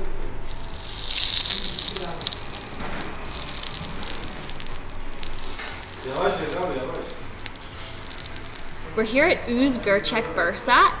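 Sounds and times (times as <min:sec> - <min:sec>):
butter sizzling on meat: 0:00.5 - 0:08.9.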